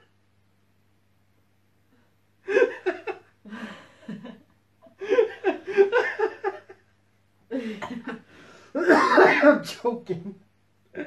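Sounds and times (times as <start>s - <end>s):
man and woman laughing: 2.5s - 4.4s, 5.0s - 6.8s.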